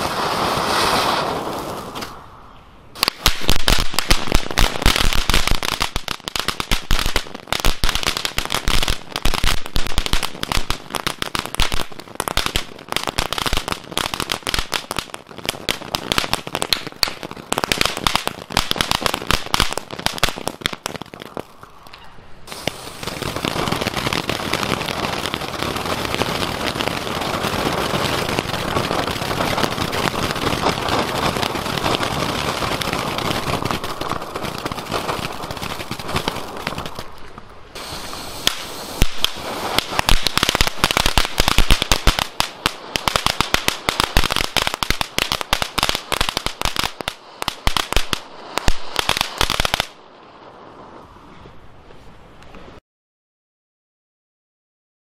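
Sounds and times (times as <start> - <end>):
firework fountain crackling: 0.0 - 52.8
hiss of spraying sparks: 22.5 - 23.8, 37.7 - 42.6.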